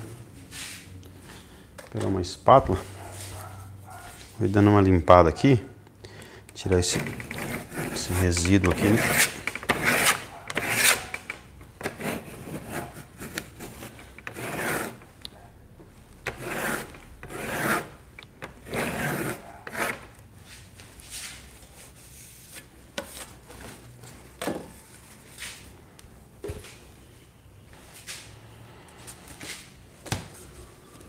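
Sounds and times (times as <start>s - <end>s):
palette knife scraping palette: 6.7s - 15.1s, 16.2s - 20.1s.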